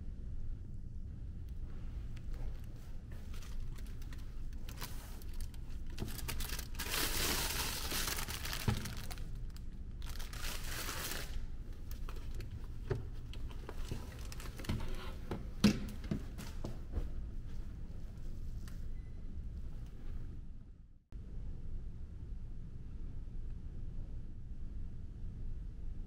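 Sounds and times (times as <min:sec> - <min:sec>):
steady low hum: 0:00.0 - 0:26.0
plastic bag crinkling: 0:02.3 - 0:15.3.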